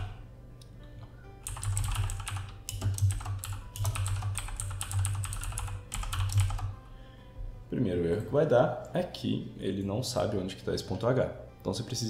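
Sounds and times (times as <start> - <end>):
typing on keyboard: 1.4 - 6.8.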